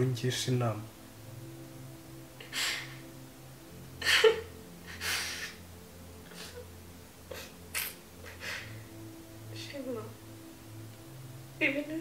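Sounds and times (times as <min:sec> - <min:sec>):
woman sniffing while crying: 0:04.9 - 0:05.6, 0:08.3 - 0:08.7.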